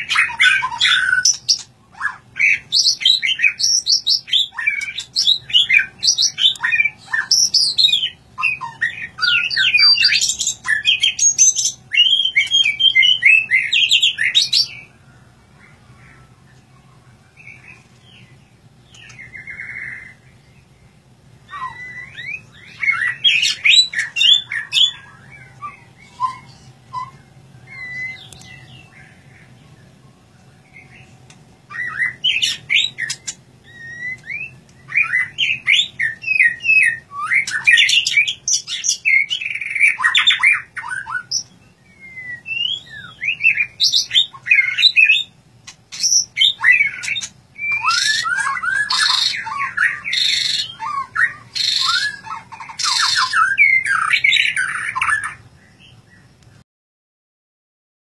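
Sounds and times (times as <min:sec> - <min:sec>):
bird singing whistled phrases: 0:00.0 - 0:14.9, 0:21.5 - 0:29.2, 0:31.7 - 0:45.3, 0:45.9 - 0:55.9.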